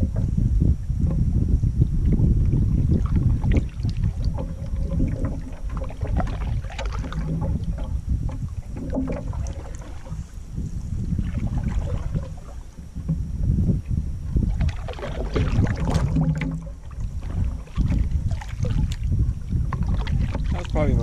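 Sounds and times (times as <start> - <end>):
wind rumble on microphone: 0.0 - 21.0
paddle splashing water: 1.0 - 21.0.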